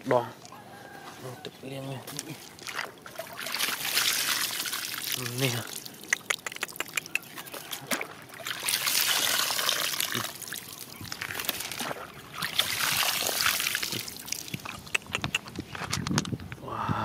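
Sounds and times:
water trickling and splashing: 0:01.7 - 0:15.3
water dripping: 0:02.1 - 0:15.1.

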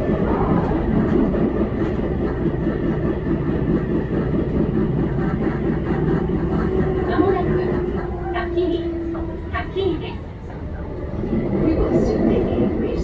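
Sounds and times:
steady train hum: 0:00.0 - 0:13.0
train wheels rumbling: 0:00.0 - 0:13.0.

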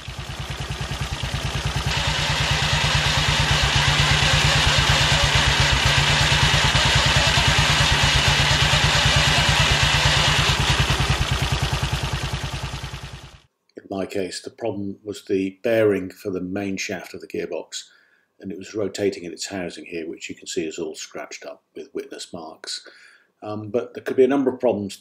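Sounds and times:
motorcycle engine idling: 0:00.0 - 0:13.5.

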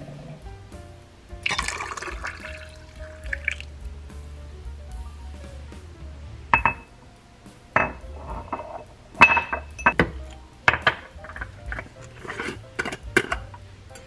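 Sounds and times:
glass jar clinking on countertop: 0:07.8 - 0:10.1.

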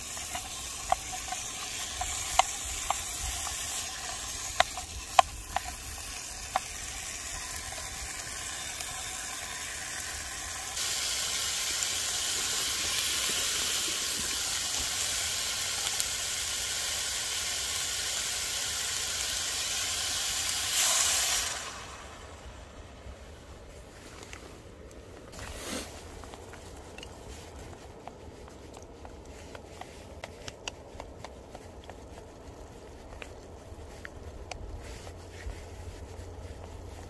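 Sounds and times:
food sizzling in frying pan: 0:00.0 - 0:22.4
water hissing in hot pan: 0:00.0 - 0:23.2.

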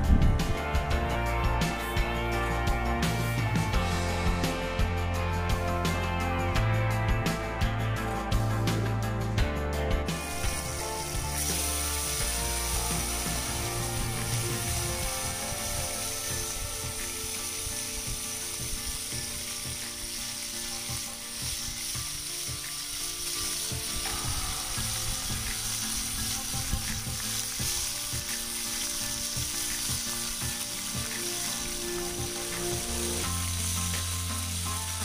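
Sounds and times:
chicken sizzling in a pan: 0:10.2 - 0:35.0
crackling: 0:10.2 - 0:35.0.

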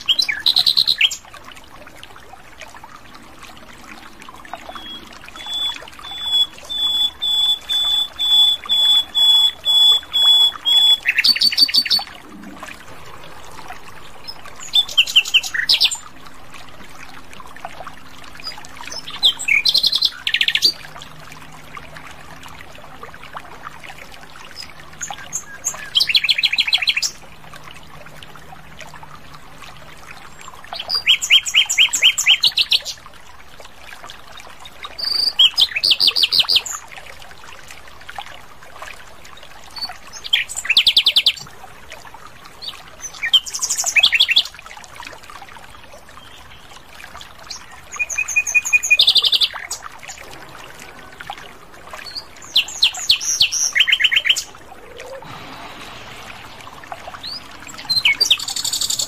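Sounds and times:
bird singing high notes: 0:04.7 - 0:12.1, 0:50.2 - 0:59.0.

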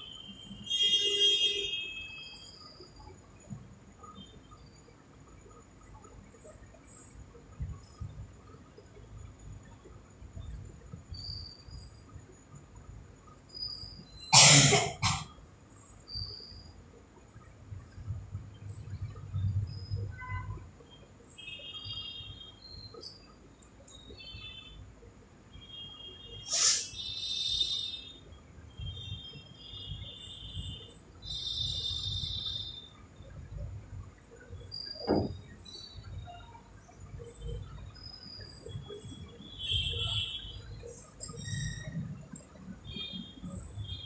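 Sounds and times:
person coughing: 0:14.4 - 0:15.3
high-pitched chirping: 0:39.8 - 0:42.5.

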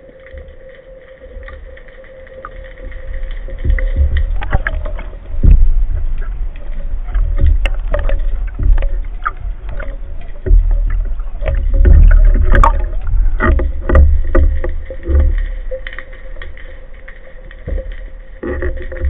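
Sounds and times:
water sloshing and rumbling: 0:00.0 - 0:19.0.

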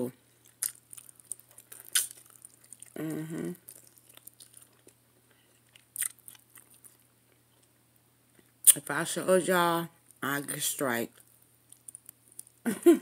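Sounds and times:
close-up chewing: 0:00.3 - 0:07.8, 0:11.1 - 0:12.6
wet mouth clicks: 0:00.5 - 0:04.9
person humming mm: 0:03.0 - 0:03.6.

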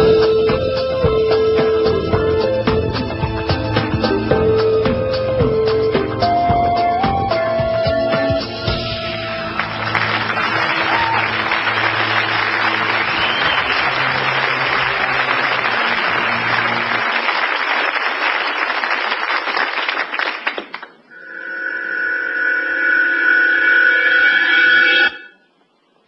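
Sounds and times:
low music notes: 0:00.0 - 0:17.2
audience applauding: 0:09.1 - 0:21.0.

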